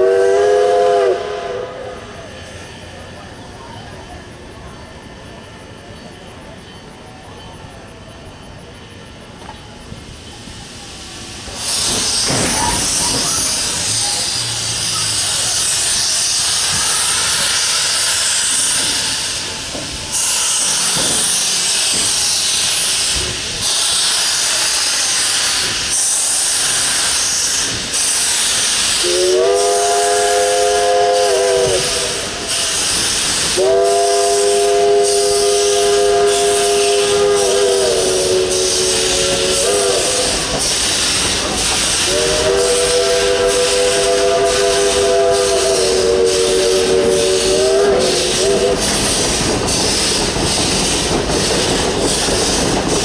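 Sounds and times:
steam whistle: 0:00.0 - 0:02.4, 0:11.6 - 0:41.2, 0:41.9 - 0:49.2
steam locomotive hissing: 0:00.0 - 0:53.0.

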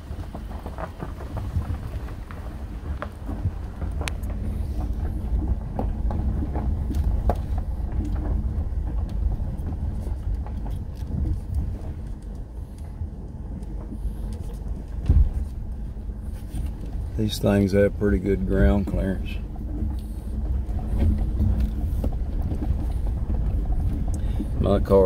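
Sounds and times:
road rumble inside car: 0:00.0 - 0:25.0
heavy thump: 0:15.0 - 0:15.5.

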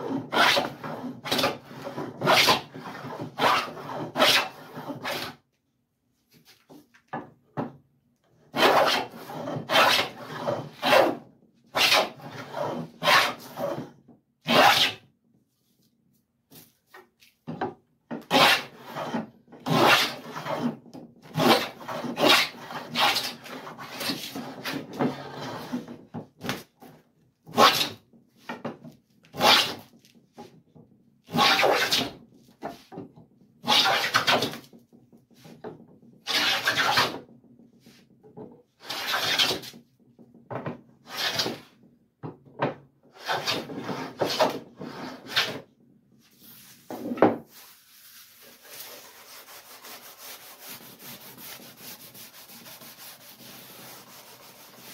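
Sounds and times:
hand plane cutting wood: 0:00.0 - 0:05.4, 0:08.5 - 0:13.9, 0:14.5 - 0:15.0, 0:18.2 - 0:26.6, 0:27.5 - 0:28.0, 0:29.4 - 0:29.9, 0:31.3 - 0:32.2, 0:33.6 - 0:34.7, 0:36.3 - 0:37.2, 0:38.8 - 0:39.8, 0:41.0 - 0:41.7, 0:43.1 - 0:45.7, 0:48.3 - 0:54.9.

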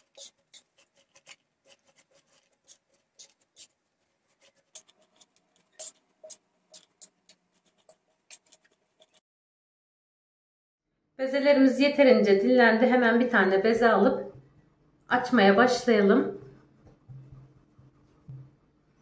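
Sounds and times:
spoon scraping metal tray: 0:00.0 - 0:09.2.

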